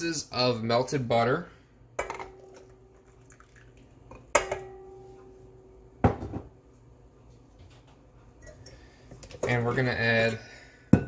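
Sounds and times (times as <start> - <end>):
bowl ringing tone: 4.4 - 5.8.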